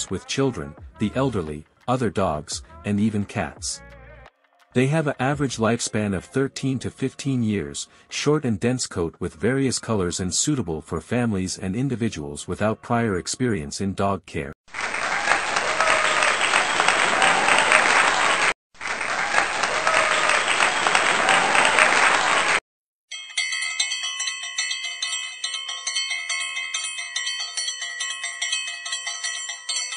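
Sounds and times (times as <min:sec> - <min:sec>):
applause and cheering: 0:14.7 - 0:22.6
bell ringing rapidly: 0:23.1 - 0:29.9.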